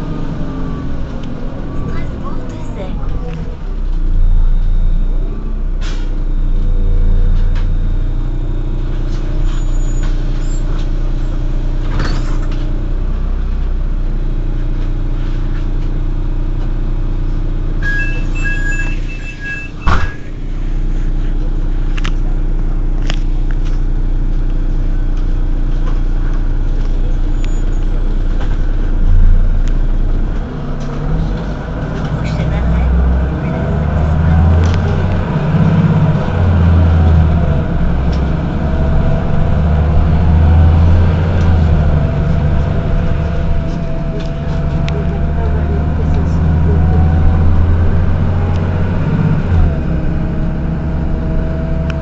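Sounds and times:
bus diesel engine humming: 0:00.0 - 0:52.0
short electronic beeping: 0:17.8 - 0:20.4.

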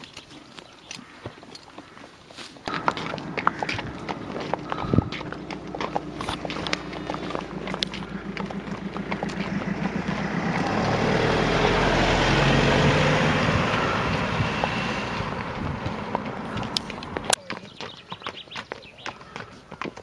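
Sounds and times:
horse hooves clip-clopping on tarmac: 0:00.0 - 0:20.0
van driving past: 0:02.7 - 0:17.4.

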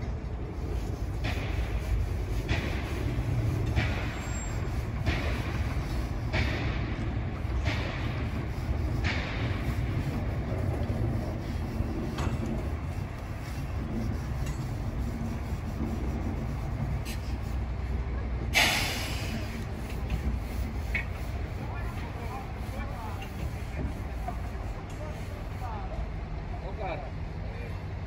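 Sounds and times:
diesel locomotive engine rumble: 0:00.0 - 0:28.0
short hisses: 0:18.5 - 0:19.6.

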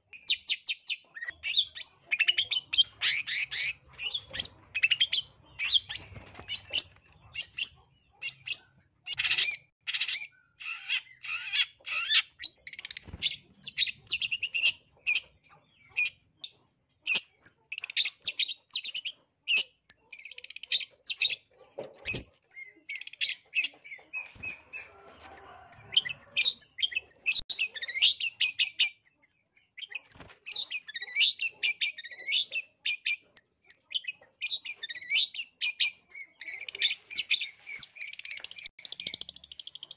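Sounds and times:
bird chattering song: 0:00.0 - 0:39.9
bird harsh squawk calls: 0:00.3 - 0:15.3.

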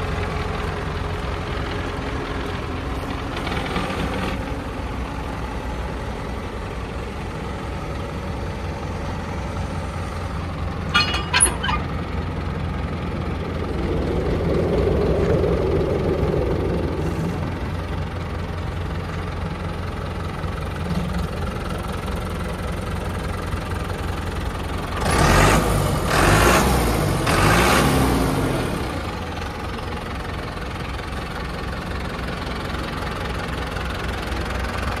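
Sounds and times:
tractor diesel engine idling: 0:00.0 - 0:25.4, 0:28.3 - 0:35.0
brief squeak: 0:10.9 - 0:12.0.

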